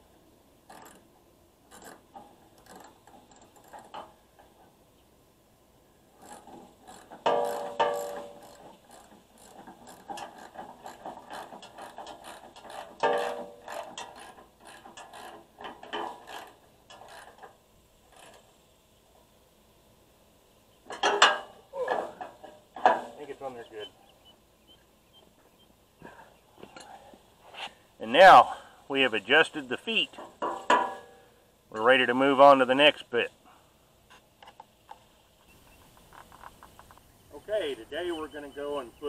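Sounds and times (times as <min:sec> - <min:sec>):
ratcheting wrench clicking: 0:00.7 - 0:01.1, 0:06.2 - 0:18.5
metal clanks: 0:06.2 - 0:18.4, 0:20.9 - 0:23.4, 0:30.1 - 0:31.2.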